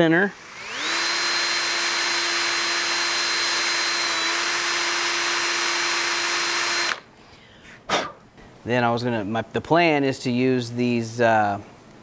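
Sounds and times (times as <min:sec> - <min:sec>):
cordless drill whining: 0:00.2 - 0:07.1.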